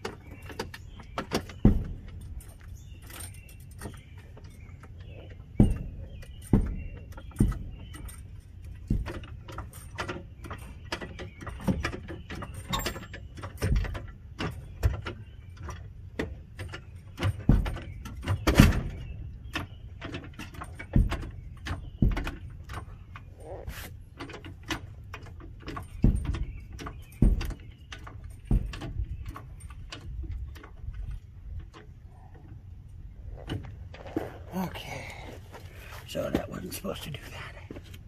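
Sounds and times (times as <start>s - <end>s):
knocks and metallic clatters: 0.0s - 38.0s.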